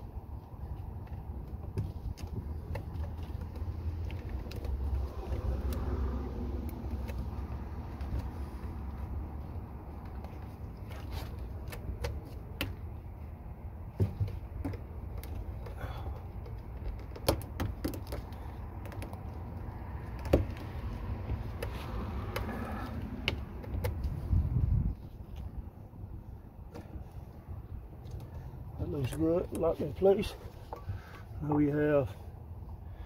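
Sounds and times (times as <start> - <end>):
hard plastic parts clicking: 14.0 - 20.7.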